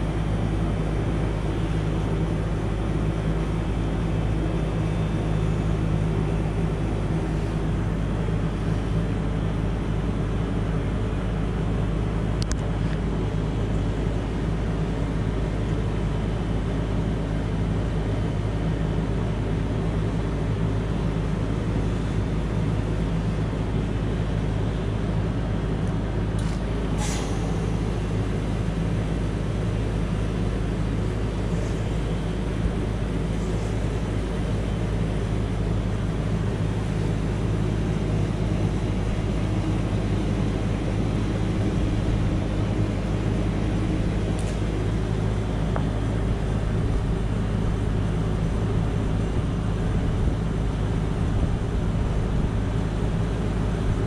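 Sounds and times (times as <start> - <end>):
compressor hum: 0.0 - 54.0
faint tick: 12.4 - 13.0.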